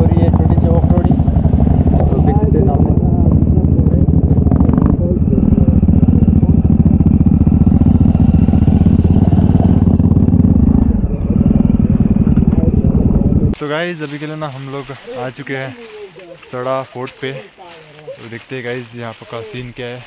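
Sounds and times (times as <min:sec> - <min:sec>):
motorcycle engine running: 0:00.0 - 0:13.6.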